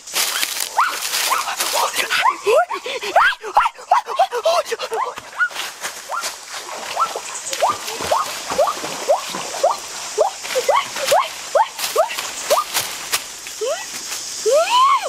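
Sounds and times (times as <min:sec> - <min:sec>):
steps in water: 0:00.0 - 0:02.3, 0:04.8 - 0:14.1
water splashing: 0:03.9 - 0:14.6.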